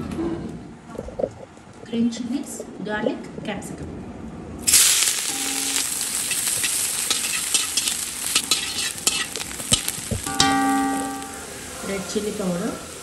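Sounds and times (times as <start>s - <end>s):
vegetables sizzling in hot oil: 4.6s - 13.0s
metal spatula scraping a pan: 5.2s - 12.9s.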